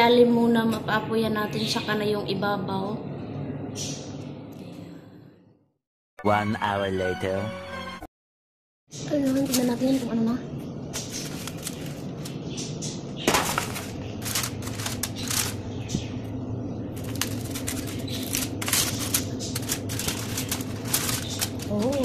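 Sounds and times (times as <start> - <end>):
aluminium foil crinkling: 9.1 - 10.3, 10.9 - 12.4, 13.3 - 16.0, 16.9 - 22.0.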